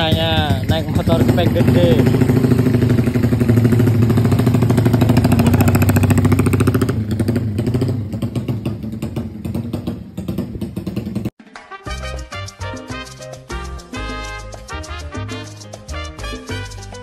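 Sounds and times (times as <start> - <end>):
motorcycle engine pulling away: 0.0 - 11.3.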